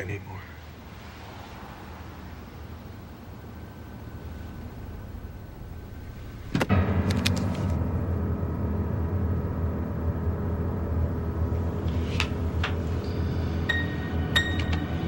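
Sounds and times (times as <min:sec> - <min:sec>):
suspense music drone: 0:03.1 - 0:15.0.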